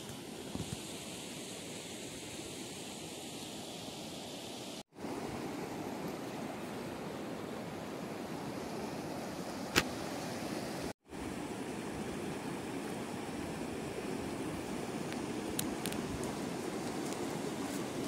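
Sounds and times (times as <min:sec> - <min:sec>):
sharp click: 0:09.7 - 0:09.9.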